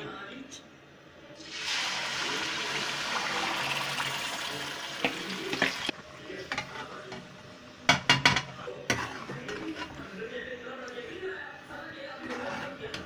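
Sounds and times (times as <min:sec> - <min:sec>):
chicken sizzling in oil: 0:01.4 - 0:06.0
spoon knocking on pan: 0:07.9 - 0:09.1.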